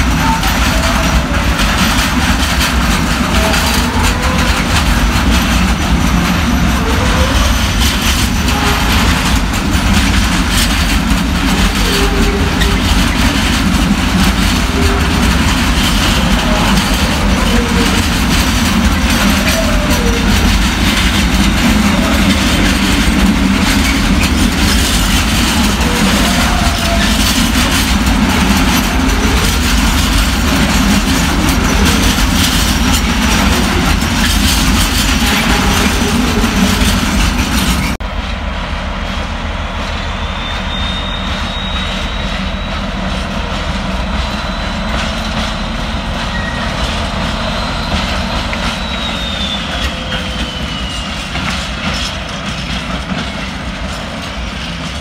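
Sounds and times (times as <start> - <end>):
train wheels rolling on rails: 0.0 - 55.0.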